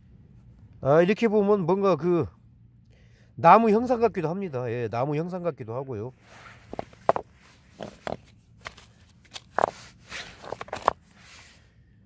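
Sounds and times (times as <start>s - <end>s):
stones and gravel clacking: 6.6s - 11.1s.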